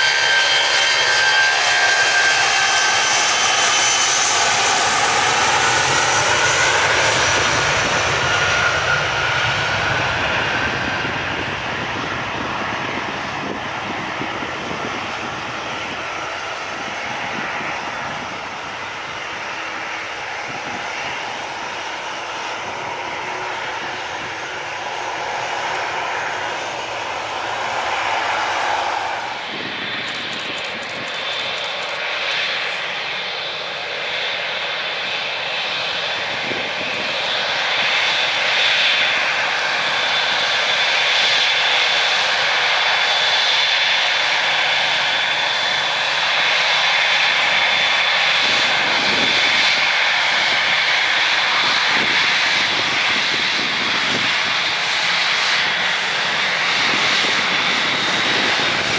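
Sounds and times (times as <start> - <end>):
jet airliner roar: 0.0 - 58.9
jet engine high whine: 0.0 - 58.9.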